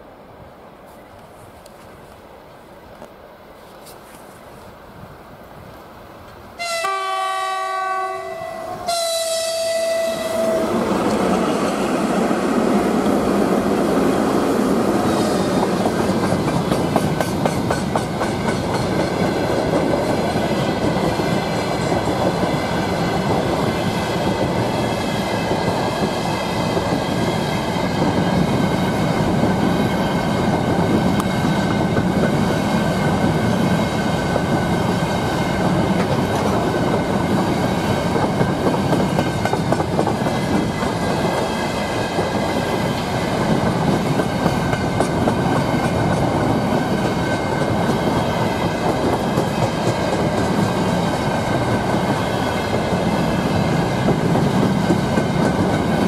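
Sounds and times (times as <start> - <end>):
freight train rumbling past: 4.8 - 56.0
locomotive horn: 6.6 - 11.0
wheels clacking over rail joints: 10.5 - 56.0.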